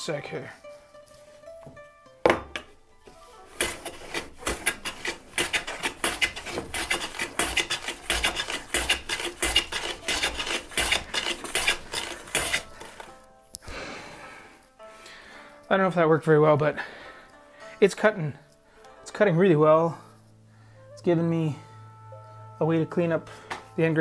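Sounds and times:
hand plane shaving end grain: 0:03.1 - 0:13.2.

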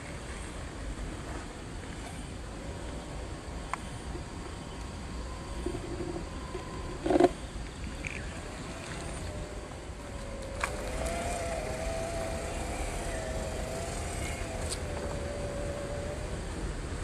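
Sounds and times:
small electric motor whining: 0:08.2 - 0:17.0.

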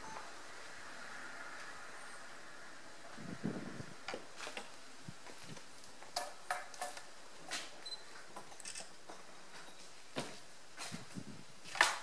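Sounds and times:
clicks and knocks at a workbench: 0:06.1 - 0:07.7.

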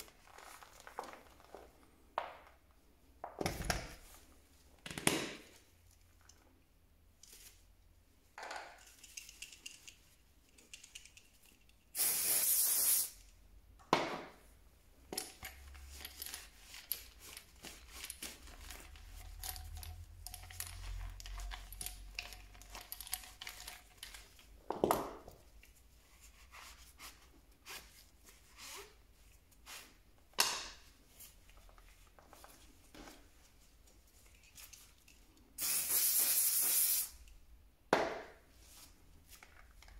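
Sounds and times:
hissing spray burst: 0:12.0 - 0:13.1, 0:35.6 - 0:37.2.

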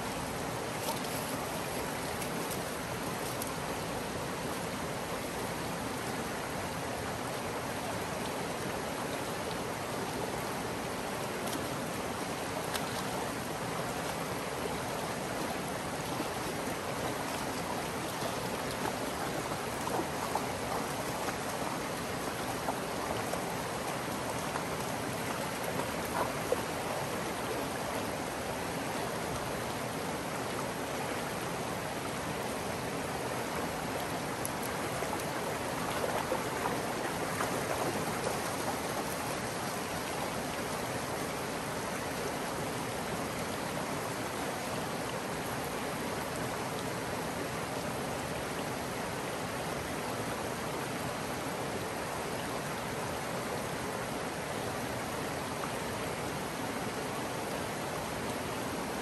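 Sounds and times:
light water splashes: 0:00.0 - 0:06.2, 0:07.4 - 0:30.0, 0:32.0 - 0:41.3
creek water running: 0:00.0 - 0:59.0.

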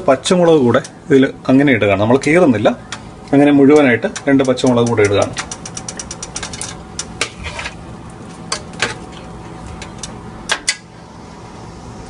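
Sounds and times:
metal spoon scraping a pot: 0:05.8 - 0:07.8.

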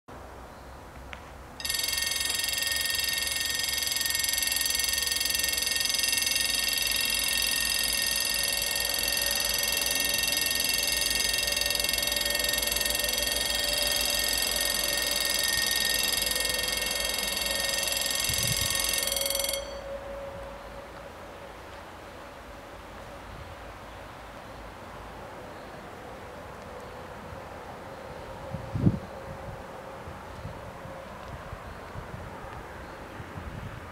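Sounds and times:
level-crossing warning bells ringing: 0:01.6 - 0:22.8.

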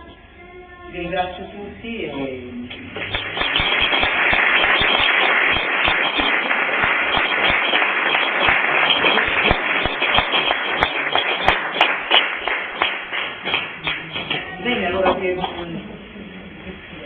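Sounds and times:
audience applauding: 0:02.9 - 0:15.6.

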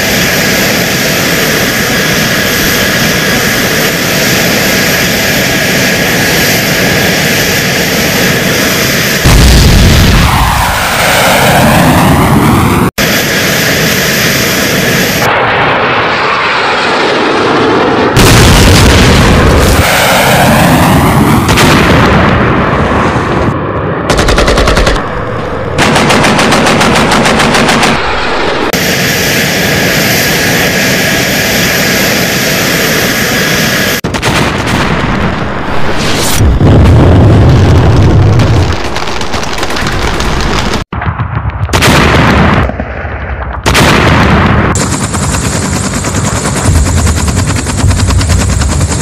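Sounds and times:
jet aircraft passing: 0:00.0 - 0:34.1
rapid automatic gunfire: 0:24.1 - 0:25.1, 0:25.8 - 0:28.1, 0:38.6 - 0:49.0.

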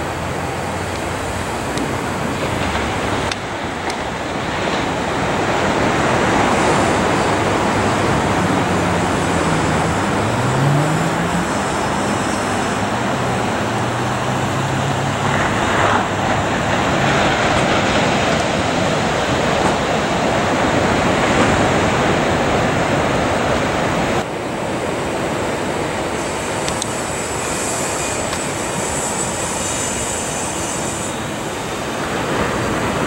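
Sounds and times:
surf: 0:00.0 - 0:29.6
road traffic rush: 0:00.0 - 0:33.0
passing vehicle engine: 0:04.5 - 0:24.2.

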